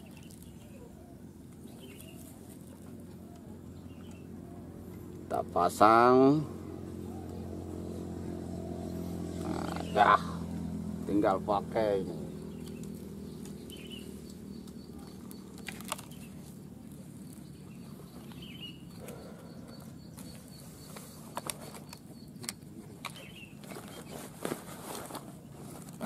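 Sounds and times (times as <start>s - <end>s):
faint bird chirps: 17.2s - 24.3s.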